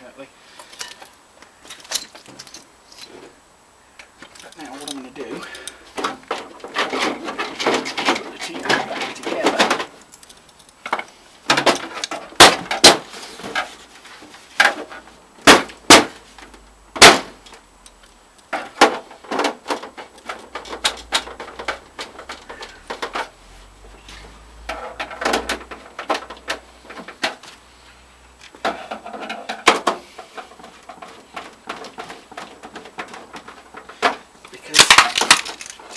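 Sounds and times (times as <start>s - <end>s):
plastic casing knocking and clattering: 18.5s - 23.3s, 24.6s - 27.4s, 28.6s - 35.8s.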